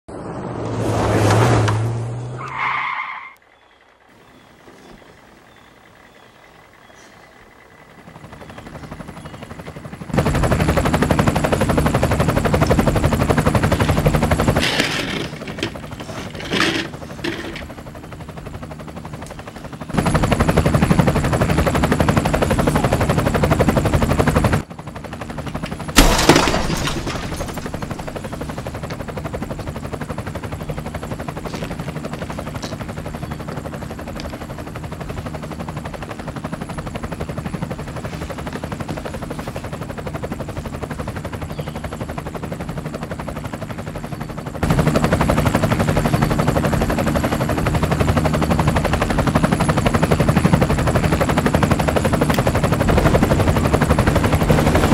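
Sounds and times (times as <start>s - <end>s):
rapid rattling pulses: 25.2s - 31.4s
sharp crash: 26.0s - 28.1s.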